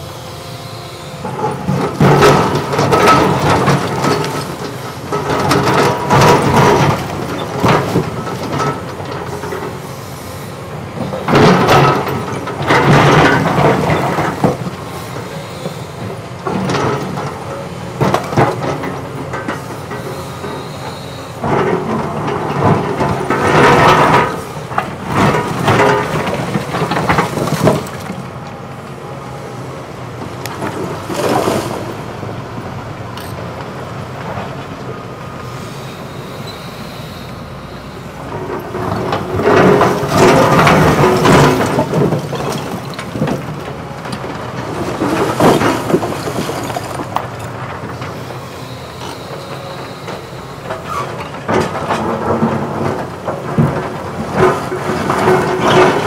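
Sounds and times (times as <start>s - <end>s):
excavator engine running: 0.0s - 56.0s.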